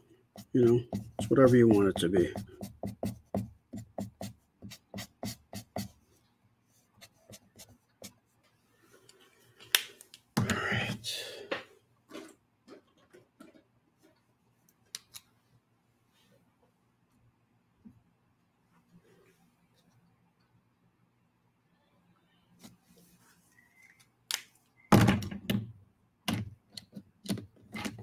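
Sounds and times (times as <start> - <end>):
marker stroking across paper: 0.4 - 8.5.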